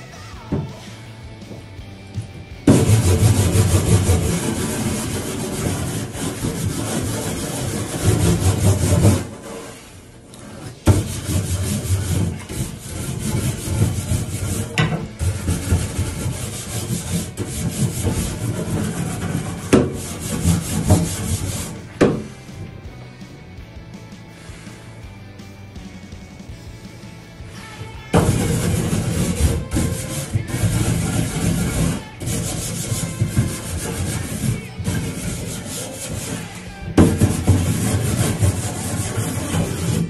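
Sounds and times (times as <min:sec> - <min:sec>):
scrubbing grill: 0:00.0 - 0:23.4, 0:26.4 - 0:40.0.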